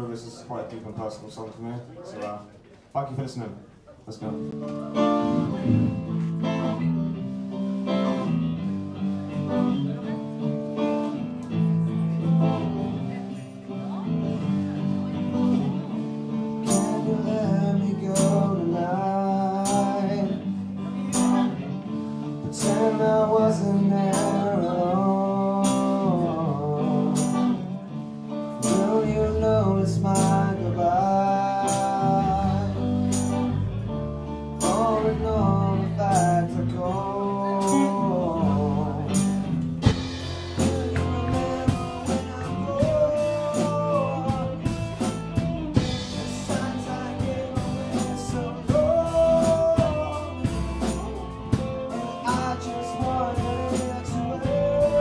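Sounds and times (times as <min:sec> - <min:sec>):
rock band playing: 0:04.4 - 0:55.0
steady drum beat: 0:05.2 - 0:06.5, 0:22.4 - 0:26.2, 0:34.6 - 0:55.0
male lead singer: 0:14.3 - 0:55.0.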